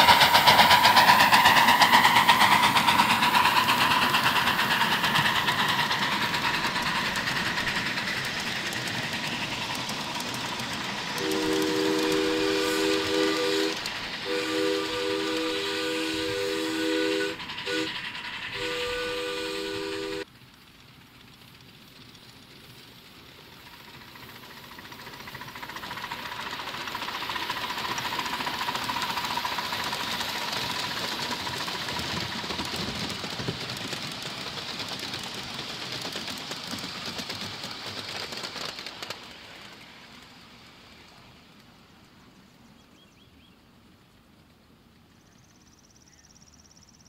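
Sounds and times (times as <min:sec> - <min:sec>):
model train wheels clattering: 0:00.0 - 0:19.0, 0:19.9 - 0:41.8.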